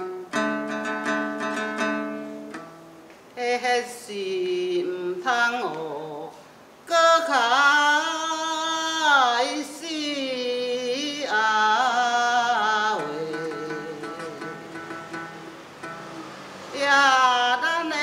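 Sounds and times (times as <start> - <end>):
elderly person singing folk song: 0.0 - 2.2, 3.4 - 16.0, 16.6 - 18.0
plucked lute: 0.0 - 6.2, 10.7 - 18.0.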